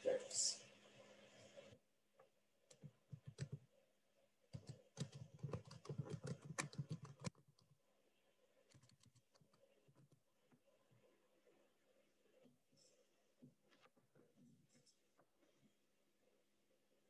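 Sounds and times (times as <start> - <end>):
faint keyboard typing: 2.2 - 15.7.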